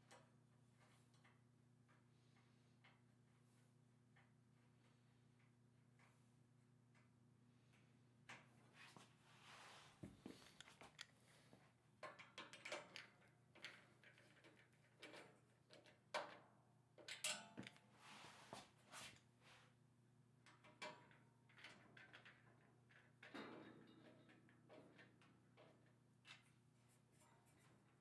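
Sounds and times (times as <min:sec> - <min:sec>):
clicks and knocks on metal rack: 0:12.0 - 0:17.8.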